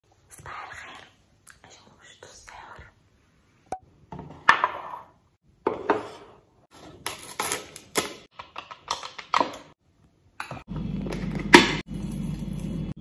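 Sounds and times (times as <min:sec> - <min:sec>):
kitchenware clinking and knocking: 0:04.1 - 0:06.4.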